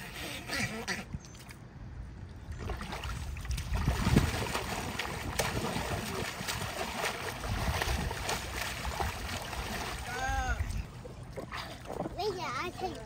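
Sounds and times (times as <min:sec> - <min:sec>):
water splashing in paddling pool: 0:02.4 - 0:13.0
heavy water splash: 0:02.5 - 0:12.2.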